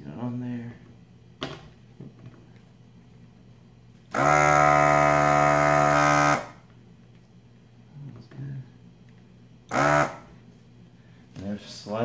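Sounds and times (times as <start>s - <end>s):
desoldering pump buzzing: 4.0s - 6.8s, 9.6s - 10.5s.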